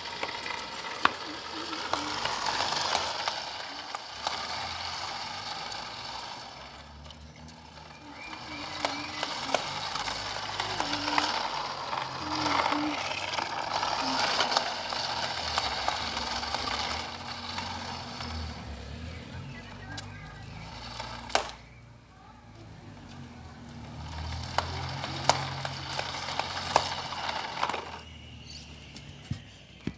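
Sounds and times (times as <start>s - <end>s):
skateboard clacks: 0.0s - 6.6s, 24.3s - 28.0s
skateboard wheels rolling on wet asphalt: 0.0s - 28.1s.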